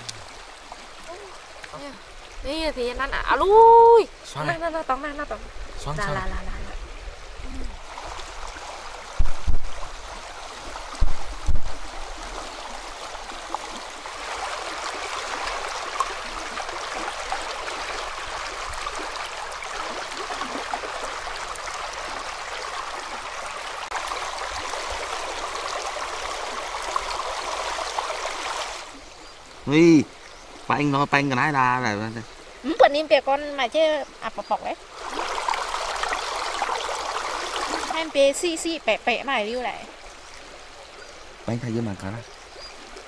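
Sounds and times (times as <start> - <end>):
river water rushing over stones: 0.0 - 4.8, 5.4 - 33.9, 34.6 - 41.8.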